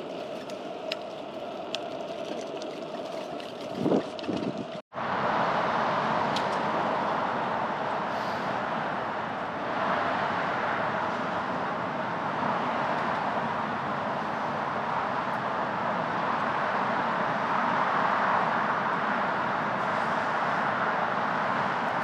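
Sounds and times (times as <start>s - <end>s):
traffic: 0.0s - 22.0s
wind noise: 0.0s - 22.0s.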